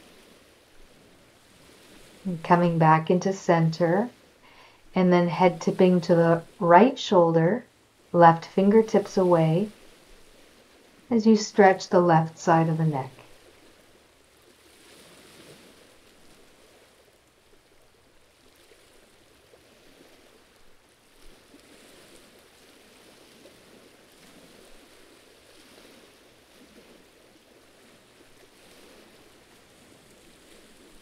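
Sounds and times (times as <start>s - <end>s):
sea water washing against rocks: 0.0s - 2.3s.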